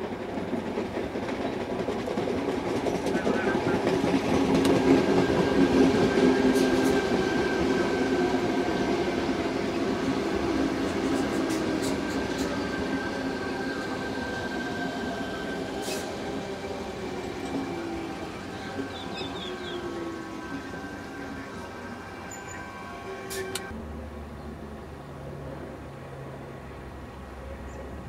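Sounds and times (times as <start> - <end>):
electric train passing: 0.0 - 28.0
wheels squealing on rails: 2.9 - 23.7.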